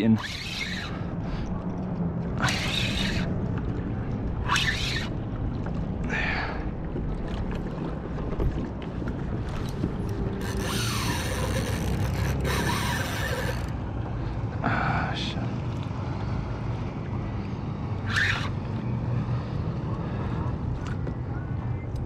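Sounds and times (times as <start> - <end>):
wind and water against hull: 0.0 - 22.0
fishing reel whirring: 0.2 - 1.0, 2.4 - 3.3, 10.4 - 13.8.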